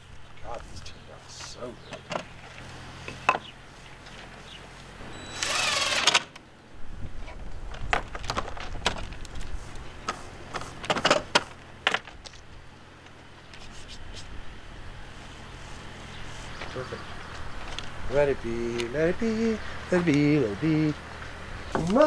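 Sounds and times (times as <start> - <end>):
small motor tool whirring: 5.2 - 6.3.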